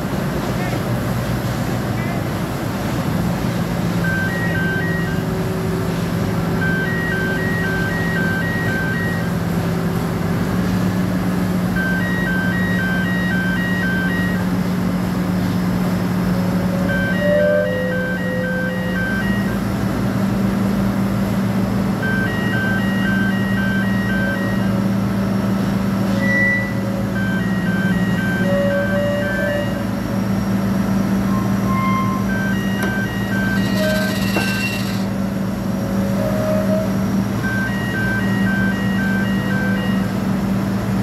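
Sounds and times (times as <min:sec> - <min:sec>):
diesel engine running: 0:00.0 - 0:41.0
quick electronic warning beeps: 0:04.0 - 0:05.4, 0:06.6 - 0:09.5, 0:11.8 - 0:14.5, 0:16.9 - 0:19.8, 0:26.1 - 0:29.9, 0:31.2 - 0:35.2, 0:36.2 - 0:40.2.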